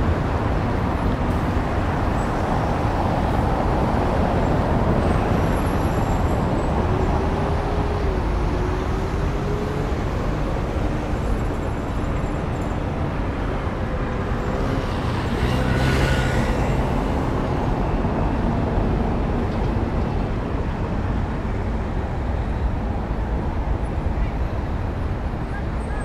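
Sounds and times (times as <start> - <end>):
road traffic noise: 0.0 - 26.0
vehicle passing: 14.4 - 17.8.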